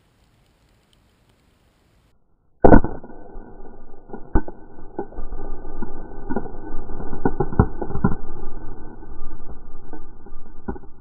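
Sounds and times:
slowed explosion rumble: 2.6 - 11.0.

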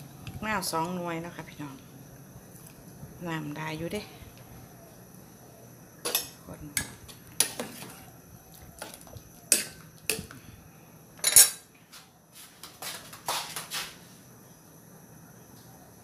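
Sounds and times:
metal utensil clinking on pot: 11.2 - 11.6.

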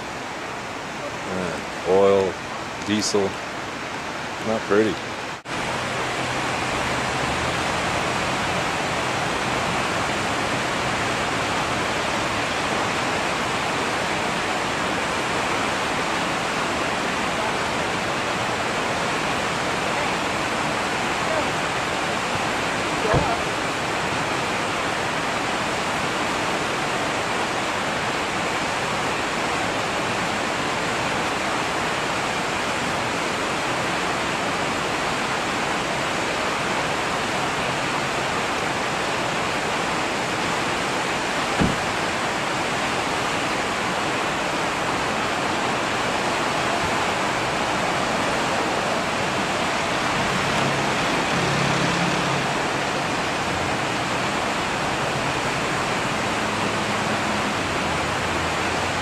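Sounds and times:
fast-flowing river rushing: 0.0 - 59.0.

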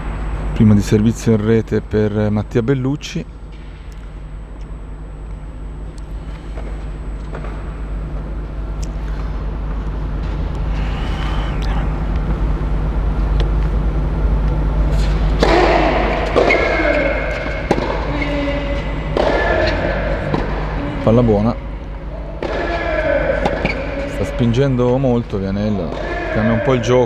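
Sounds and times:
steady low hum: 0.0 - 27.0
voices: 15.4 - 27.0.

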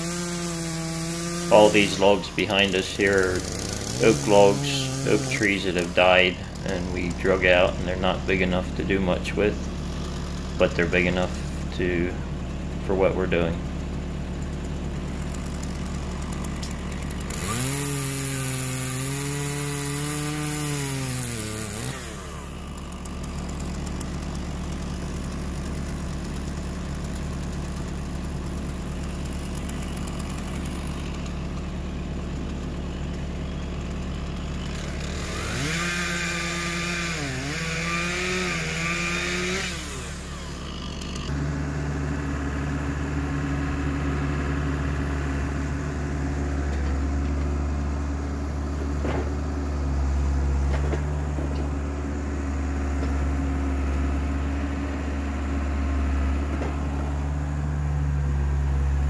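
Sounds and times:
chainsaw cutting log: 0.0 - 59.0
low engine hum: 0.0 - 59.0.

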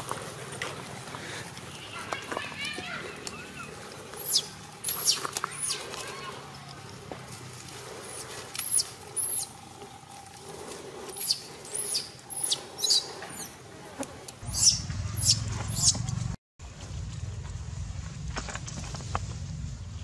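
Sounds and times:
baby monkey squealing: 4.2 - 5.9, 8.1 - 9.5, 11.2 - 13.5, 14.5 - 16.0.

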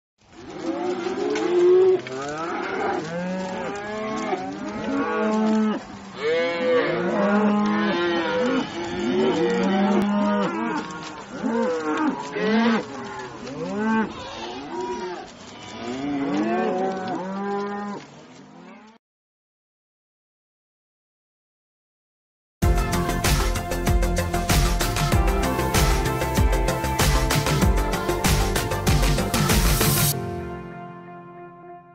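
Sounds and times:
cattle mooing: 0.4 - 19.0.

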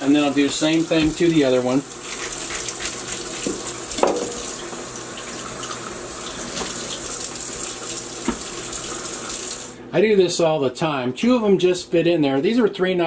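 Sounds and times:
tap running into steel sink: 0.9 - 1.3, 3.4 - 4.9, 8.2 - 8.5.

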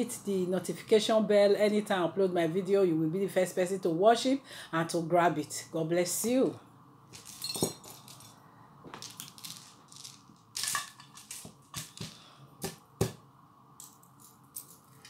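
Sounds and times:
jewellery beads clicking and rattling: 7.2 - 8.4, 9.0 - 12.2.

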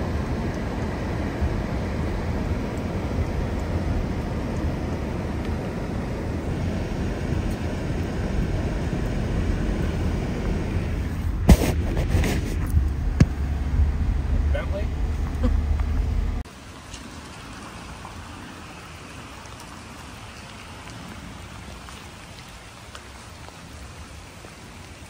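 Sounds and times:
car driving on wet road: 0.0 - 25.0.

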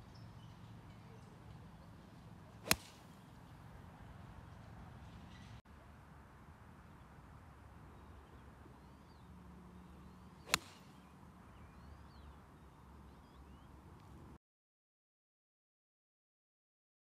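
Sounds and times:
golf club striking ball: 2.6 - 3.2, 10.4 - 11.1.

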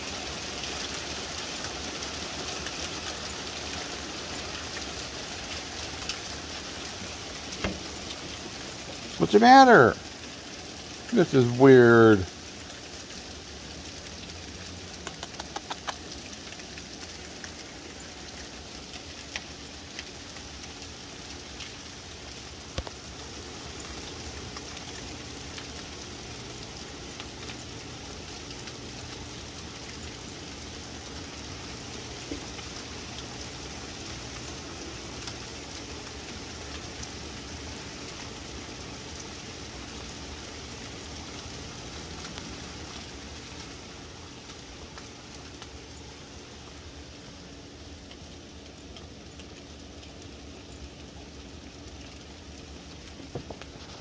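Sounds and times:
hail falling: 0.0 - 54.0
sharp hail ticks: 14.9 - 33.4, 34.1 - 38.4.

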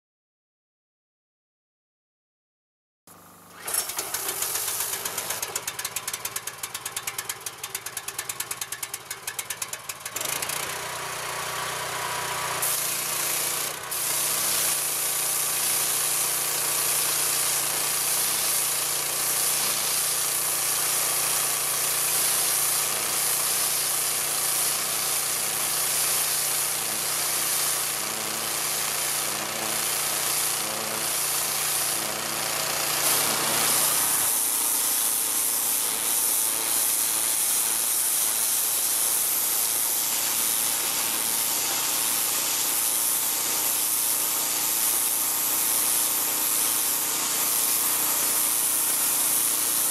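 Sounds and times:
pressure washer engine running: 3.1 - 49.9
high-pressure water jet hissing: 3.6 - 6.0, 12.4 - 49.9.

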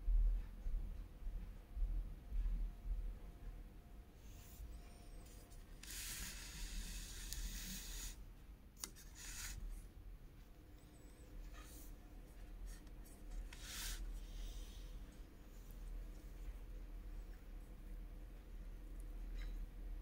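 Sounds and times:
scratchy rubbing: 5.3 - 8.2, 8.8 - 9.8, 12.7 - 14.6.

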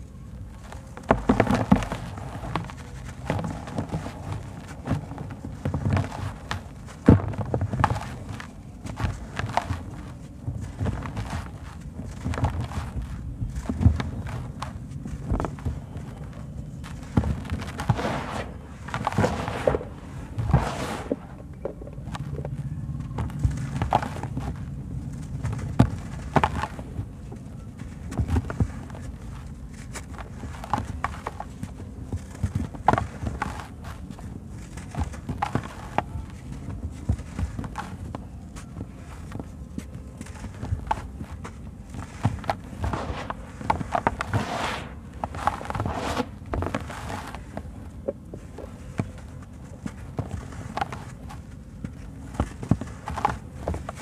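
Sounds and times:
low steady rumble: 0.0 - 54.0
sand-cement lumps crunching: 0.4 - 27.1, 40.2 - 51.5.

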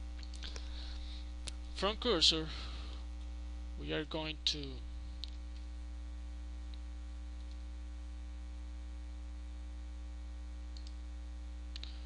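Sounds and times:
mains hum: 0.0 - 12.0
faint clicks: 0.2 - 0.7, 5.2 - 5.7, 10.7 - 11.0, 11.7 - 12.0.

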